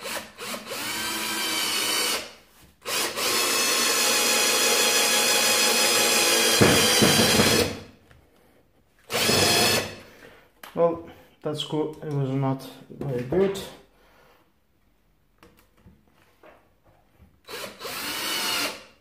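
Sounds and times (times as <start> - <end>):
cordless drill motor whining: 0.0 - 2.2, 2.8 - 7.7, 9.1 - 9.9, 17.4 - 18.8.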